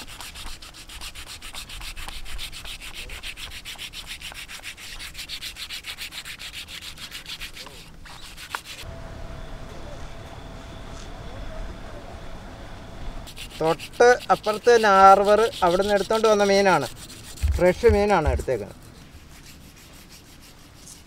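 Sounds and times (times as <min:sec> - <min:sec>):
knife scraping fish scales: 0:00.0 - 0:08.8, 0:13.3 - 0:21.0
low background hum: 0:07.2 - 0:21.0.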